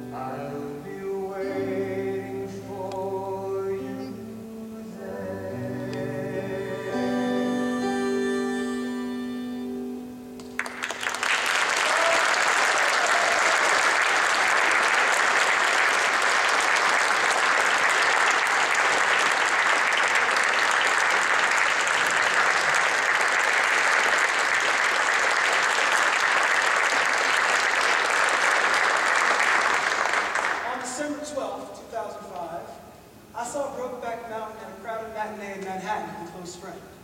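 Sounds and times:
man singing: 0:00.0 - 0:09.5
piano and acoustic guitar: 0:00.0 - 0:10.7
audience applause: 0:10.4 - 0:30.9.

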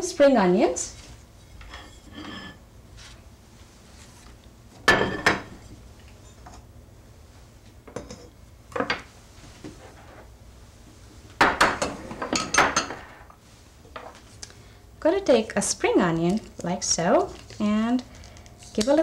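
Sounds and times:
kitchenware clinking and knocking: 0:04.9 - 0:05.6, 0:11.4 - 0:13.2.

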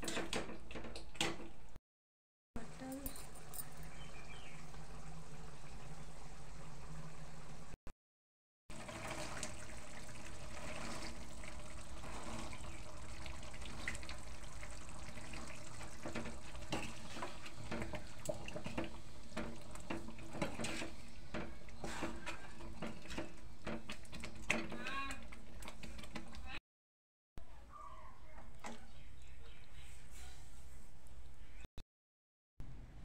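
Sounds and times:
peas and gravy sizzling in a pan: 0:08.7 - 0:26.2.

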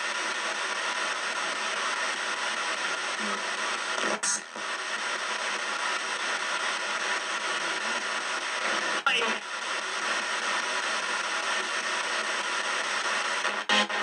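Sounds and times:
radio static hiss: 0:00.0 - 0:14.0
muffled voice fragment: 0:09.1 - 0:09.4.

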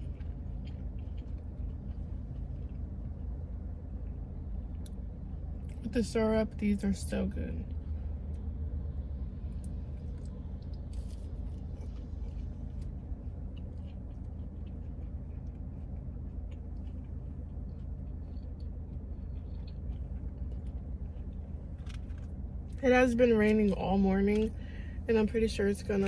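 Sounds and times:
person chewing: 0:00.0 - 0:05.0, 0:09.6 - 0:22.8.

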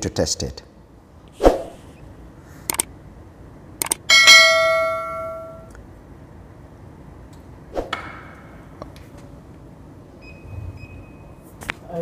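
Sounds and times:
clink with short ring: 0:04.1 - 0:05.7
notification bell ringing: 0:04.1 - 0:05.7.

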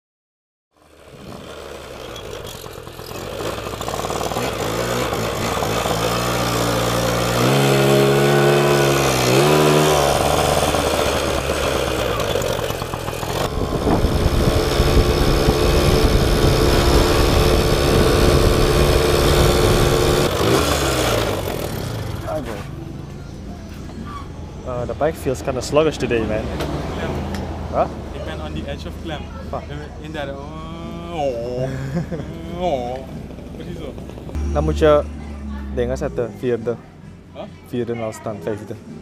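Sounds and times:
moped engine revving: 0:00.8 - 0:23.1, 0:30.1 - 0:37.3.

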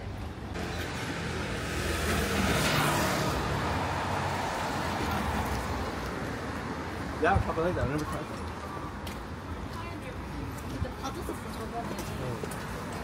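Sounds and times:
vehicle passing by: 0:00.6 - 0:07.0.

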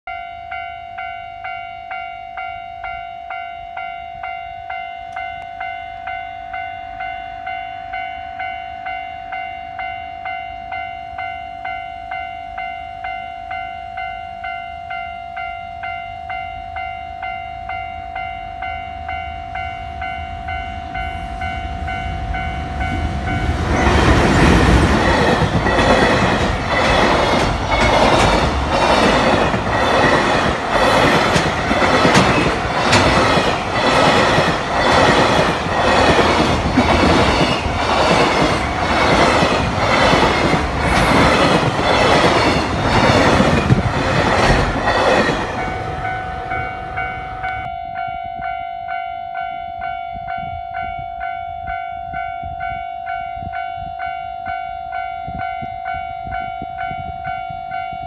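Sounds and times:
train wheels clattering over rails: 0:22.9 - 0:46.6.

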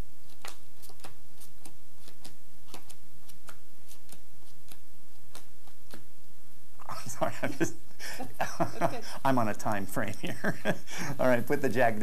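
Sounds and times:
playing cards clicking on table: 0:00.3 - 0:06.1
steady hiss: 0:06.8 - 0:12.0.

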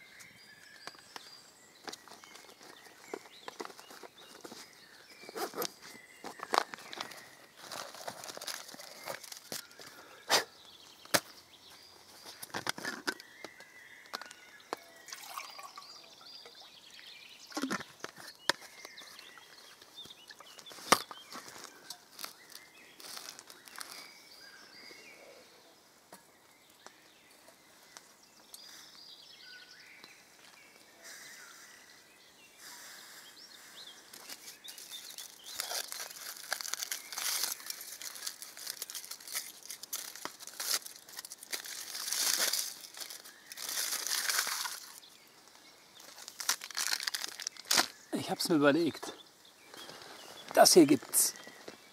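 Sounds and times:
birds chirping: 0:00.0 - 0:51.9
camp gear clicks and knocks: 0:00.2 - 0:15.0, 0:17.5 - 0:25.1, 0:34.1 - 0:45.1, 0:46.0 - 0:48.0
dense crinkling: 0:01.8 - 0:10.1, 0:17.6 - 0:24.2, 0:34.2 - 0:48.6.

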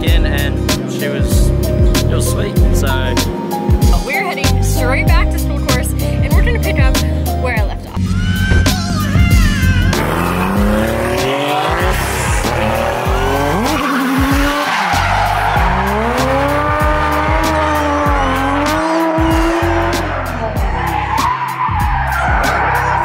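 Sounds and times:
music with steady beat: 0:00.0 - 0:23.0
car engine revving hard: 0:08.0 - 0:23.0
tyres squealing: 0:08.0 - 0:23.0.

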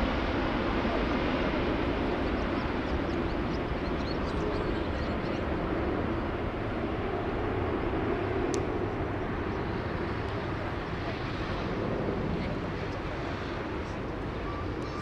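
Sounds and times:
jet airliner rumble: 0:00.0 - 0:15.0.

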